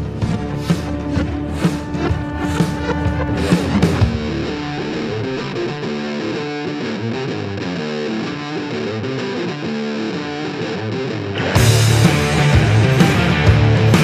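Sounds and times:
distorted electric guitar riff: 0.0 - 14.0
rock band playing: 0.0 - 14.0.

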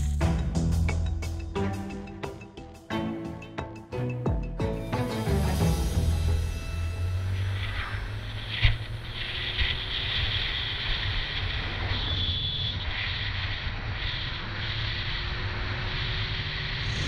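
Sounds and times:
motorcycle engine cruising: 6.1 - 17.0
wind rushing over microphone: 7.3 - 17.0.

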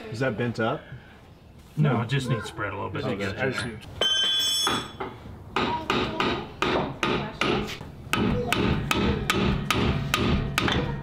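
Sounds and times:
hammer striking steel: 4.0 - 11.0.

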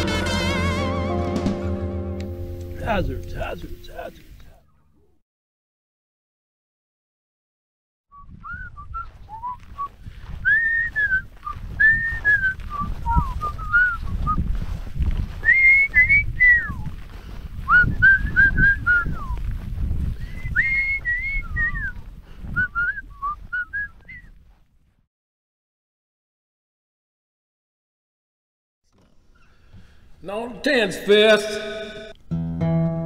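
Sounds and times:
man whistling a tune: 8.1 - 14.5, 15.4 - 16.9, 17.7 - 19.4, 20.2 - 24.3
wind rumble on microphone: 8.2 - 24.5.

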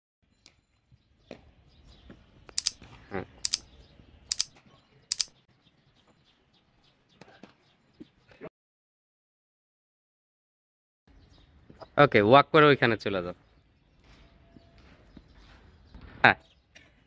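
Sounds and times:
faint outdoor background noise: 0.2 - 8.5, 11.1 - 17.0
mouse clicks: 3.4 - 3.6, 5.1 - 5.3.

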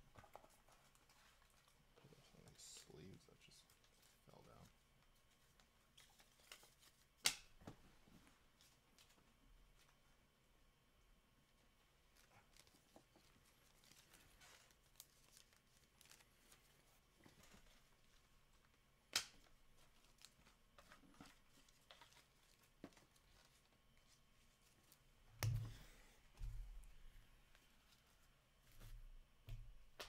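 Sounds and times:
trading cards rustling and clicking: 0.1 - 7.5.

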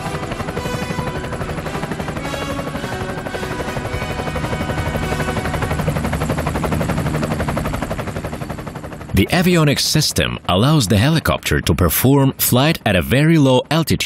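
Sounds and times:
background music: 0.0 - 8.1
helicopter rotors beating: 0.0 - 14.0.

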